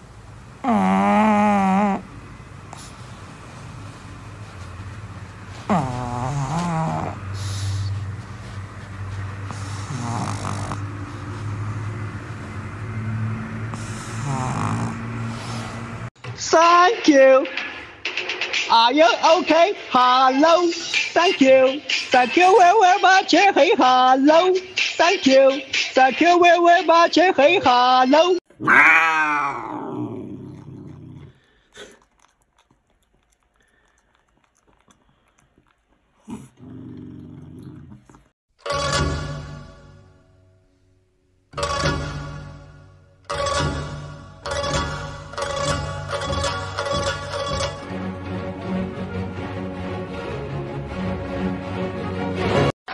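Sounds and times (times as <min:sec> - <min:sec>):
cat growling low: 0:00.6 - 0:02.2, 0:05.6 - 0:07.4, 0:09.5 - 0:11.0, 0:13.8 - 0:15.9, 0:28.5 - 0:38.3
dog snoring: 0:00.6 - 0:03.0, 0:05.6 - 0:08.0, 0:09.4 - 0:11.7, 0:13.7 - 0:15.9, 0:29.6 - 0:32.4, 0:33.0 - 0:38.3
cat licking with small clicks: 0:31.4 - 0:36.3.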